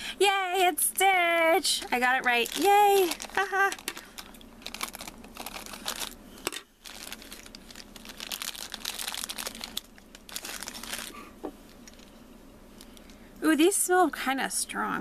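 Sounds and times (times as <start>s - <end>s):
plastic bag crinkling: 1.5s - 12.1s
plastic toy pieces handled: 1.8s - 11.2s.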